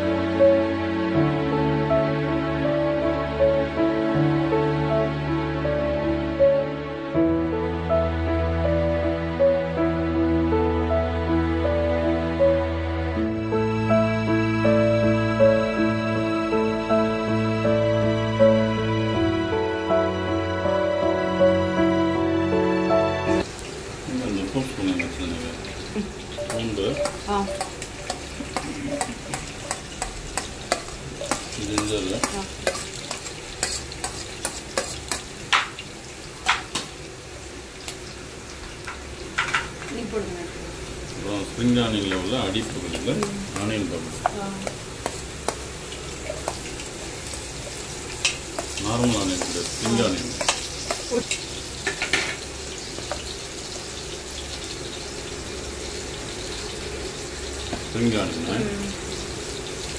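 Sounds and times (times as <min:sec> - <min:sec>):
food sizzling in hot oil: 0:23.3 - 0:59.9
metal spoon scraping a plate: 0:32.2 - 0:35.2.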